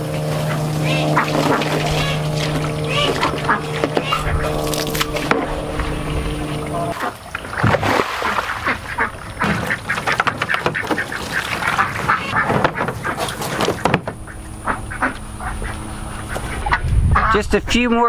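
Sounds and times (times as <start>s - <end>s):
ducks quacking: 0.0s - 17.9s.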